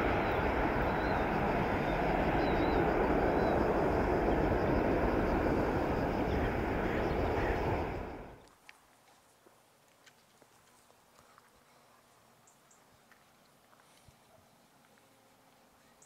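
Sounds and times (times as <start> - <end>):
jet engine roar: 0.0 - 8.4.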